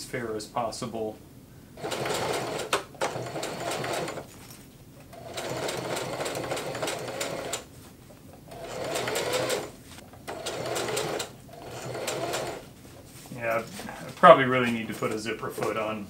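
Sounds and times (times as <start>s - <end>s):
sewing machine stitching: 1.8s - 4.3s, 5.1s - 7.7s, 8.5s - 12.7s.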